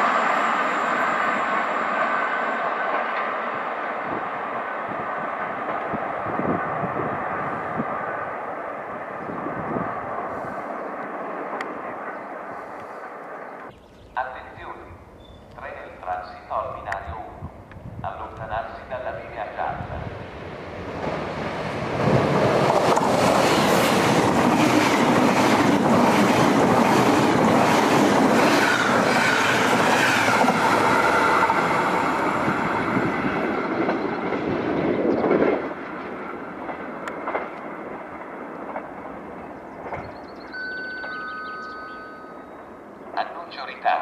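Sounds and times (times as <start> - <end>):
train wheels rushing on rails: 0.0 - 13.7, 19.7 - 43.2
clickety-clack over rail joints: 5.4 - 6.1, 21.8 - 31.5, 33.3 - 40.4.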